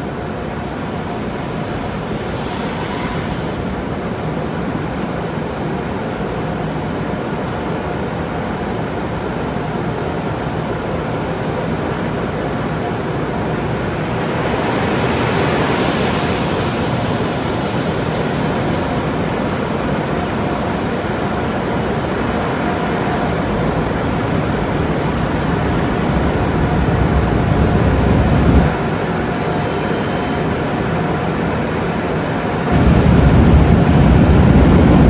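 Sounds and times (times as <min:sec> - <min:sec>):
deep rumble: 0:00.0 - 0:04.4, 0:13.3 - 0:29.2, 0:32.7 - 0:35.0.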